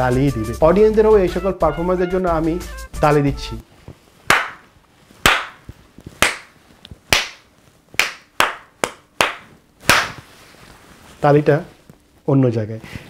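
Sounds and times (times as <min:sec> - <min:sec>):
hand claps: 0:04.3 - 0:10.3.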